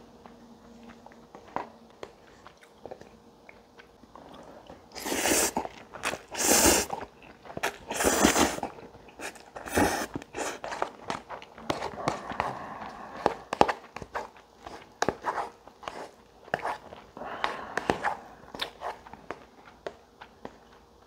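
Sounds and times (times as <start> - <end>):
person slurping noodles: 5.0 - 7.0, 7.6 - 10.7.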